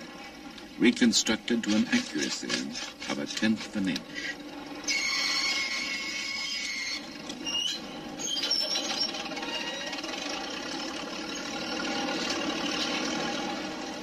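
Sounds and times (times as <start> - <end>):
heavy machinery running: 0.0 - 14.0
short squealing tones: 4.8 - 10.3
high squeal: 4.9 - 10.2.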